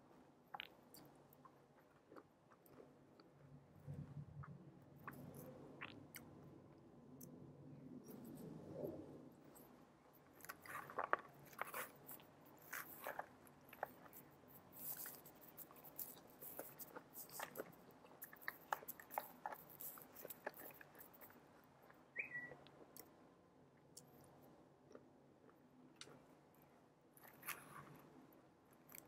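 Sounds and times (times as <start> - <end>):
chewing and crunching salad: 0.5 - 3.5, 4.4 - 7.4, 9.5 - 23.1, 28.8 - 29.0
small clicks and crackles: 9.5 - 22.0.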